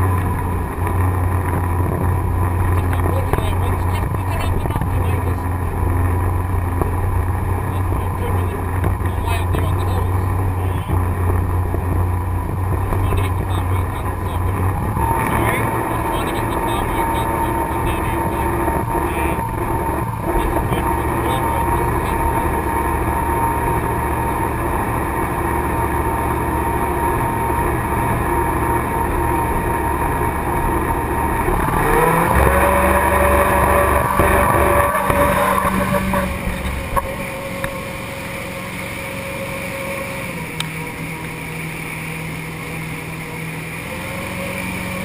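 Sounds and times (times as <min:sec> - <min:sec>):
boat engine running: 0:00.0 - 0:45.0
rush of wind and water: 0:00.0 - 0:45.0.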